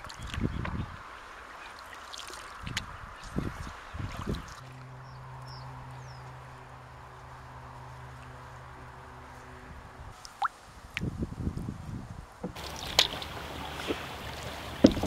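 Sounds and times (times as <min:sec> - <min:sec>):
water swirling: 0:00.0 - 0:05.0, 0:12.4 - 0:15.0
canoe paddle knocks: 0:12.4 - 0:15.0.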